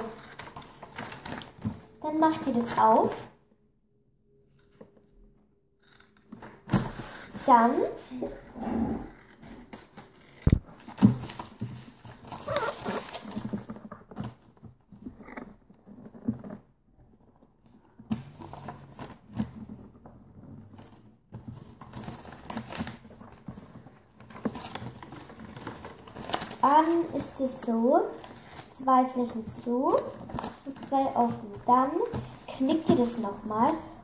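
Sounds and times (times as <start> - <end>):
paper rustling and crackling: 0.0 - 1.9, 5.8 - 7.5, 9.2 - 19.8, 20.7 - 33.3.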